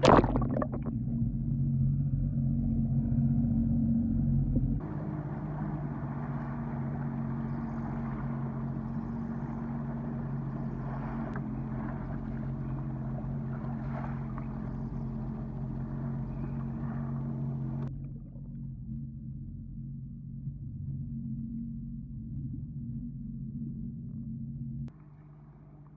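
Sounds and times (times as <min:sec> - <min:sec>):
water and wind rush: 0:00.0 - 0:01.2, 0:04.8 - 0:17.9
watercraft engine droning: 0:00.0 - 0:25.9.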